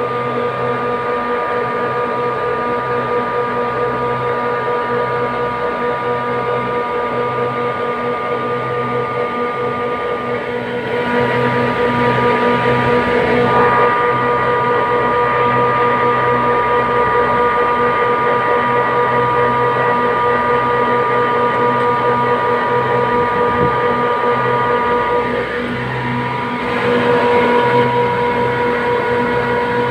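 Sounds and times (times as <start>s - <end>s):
air conditioning machinery hum: 0.0s - 29.9s
high whining tone: 8.3s - 29.9s.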